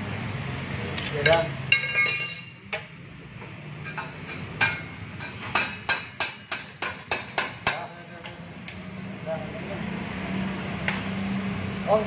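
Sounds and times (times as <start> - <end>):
metal knocks on exhaust pipe: 4.0 - 8.4.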